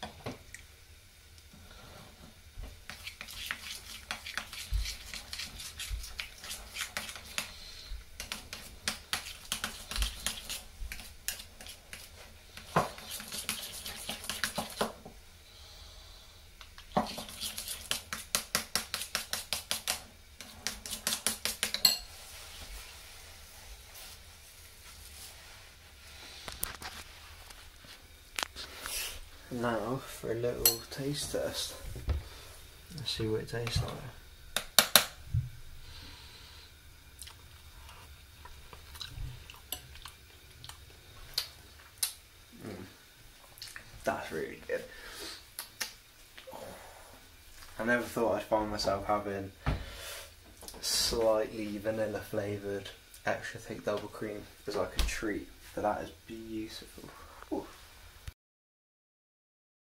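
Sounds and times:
spoon stirring cream in a bowl: 0:02.8 - 0:15.0, 0:16.6 - 0:22.1
wet mouth smacks and clicks: 0:45.6 - 0:46.0.

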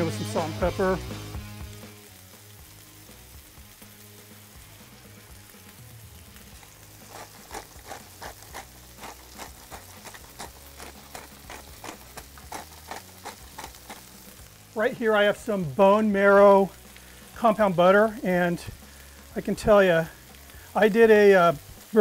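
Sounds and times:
background music with beat: 0:00.0 - 0:14.6
burger patties sizzling on griddle: 0:00.0 - 0:22.0.

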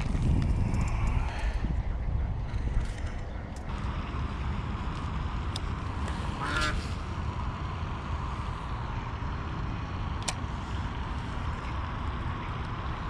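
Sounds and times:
wind rumble on microphone: 0:00.0 - 0:13.0
duck quack: 0:06.4 - 0:06.9.

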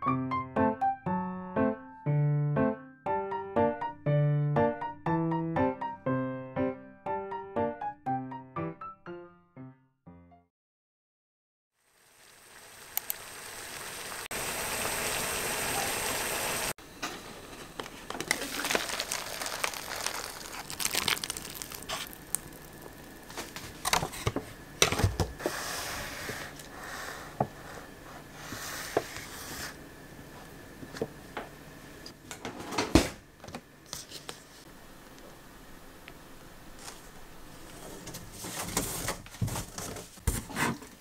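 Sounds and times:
paper lid and packets crinkling: 0:17.6 - 0:24.3
water pouring into cup: 0:18.3 - 0:22.5.

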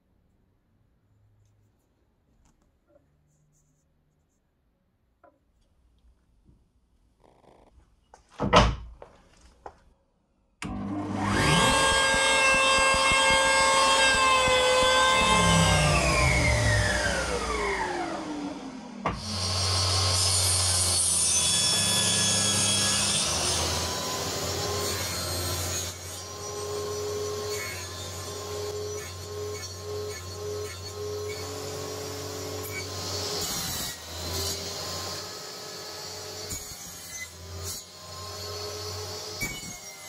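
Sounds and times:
power saw cutting wood: 0:10.6 - 0:40.0
sharp knock: 0:11.4 - 0:15.4.

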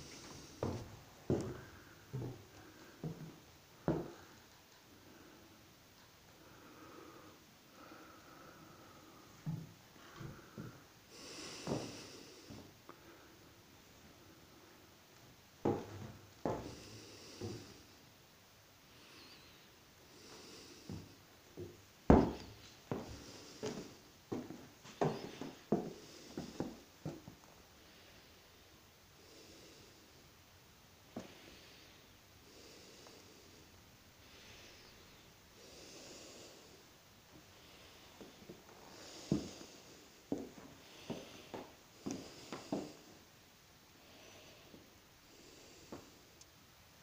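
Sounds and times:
footsteps on wooden floorboards: 0:00.0 - 0:04.3, 0:11.6 - 0:12.6, 0:15.6 - 0:17.8, 0:20.9 - 0:27.3, 0:39.2 - 0:39.7, 0:40.3 - 0:42.9.

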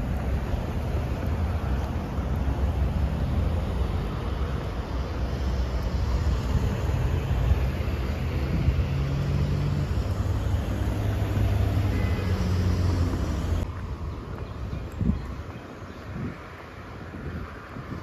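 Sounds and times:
vehicle engine running close by: 0:00.0 - 0:13.7
street traffic noise: 0:00.0 - 0:18.0.

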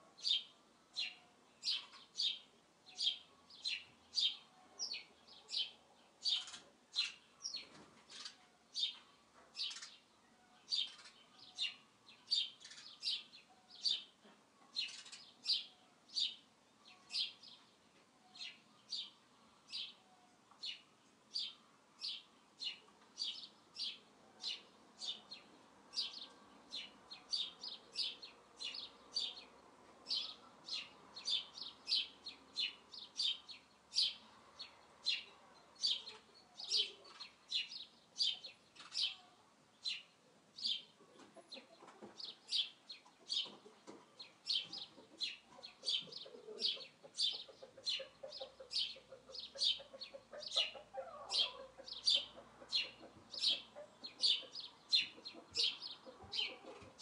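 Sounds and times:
small bird chirping: 0:00.2 - 0:57.0
hens clucking softly: 0:41.0 - 0:42.4, 0:43.0 - 0:57.0.

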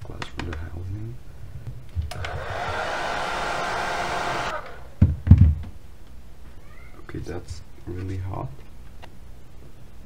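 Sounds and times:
hair dryer running: 0:02.1 - 0:05.0.

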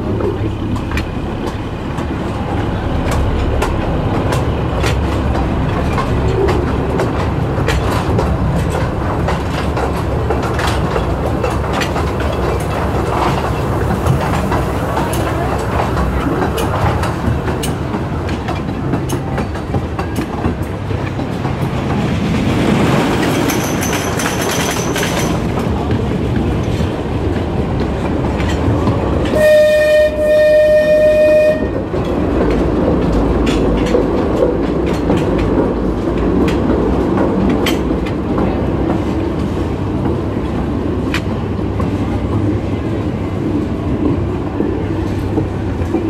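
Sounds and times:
train rumbling: 0:00.0 - 0:46.0
wheels clicking over rail joints: 0:00.0 - 0:46.0
train horn blast: 0:29.3 - 0:31.9.

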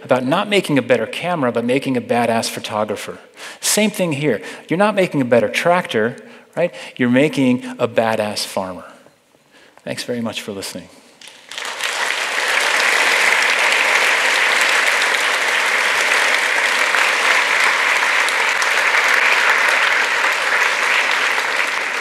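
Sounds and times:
audience applauding: 0:11.2 - 0:22.0.

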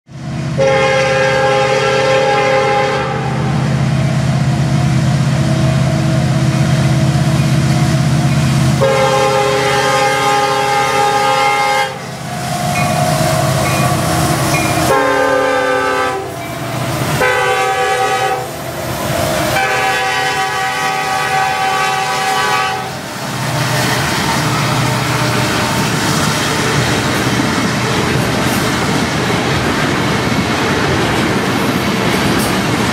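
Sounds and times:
multi-note train horn: 0:00.5 - 0:03.6, 0:08.8 - 0:16.5, 0:17.1 - 0:18.6, 0:19.5 - 0:26.9.

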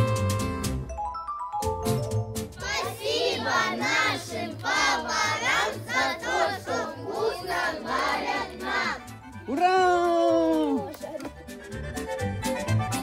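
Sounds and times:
children singing: 0:02.6 - 0:09.0.

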